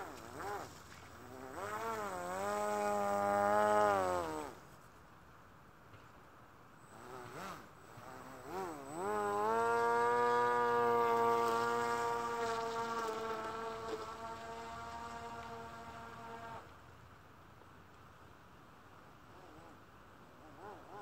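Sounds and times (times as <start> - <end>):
model boat motor and propeller: 0.0 - 21.0.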